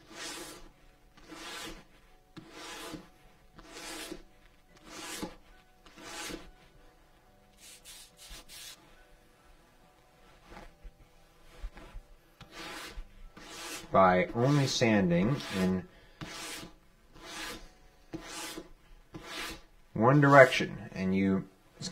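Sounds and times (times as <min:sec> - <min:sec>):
sanding stick rubbing leather edge: 0:00.0 - 0:06.5, 0:07.6 - 0:08.8, 0:11.8 - 0:17.6, 0:18.2 - 0:19.6.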